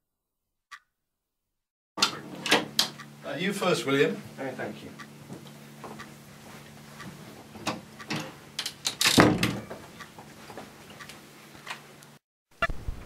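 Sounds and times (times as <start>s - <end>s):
footsteps: 5.3s - 7.6s, 9.8s - 11.7s.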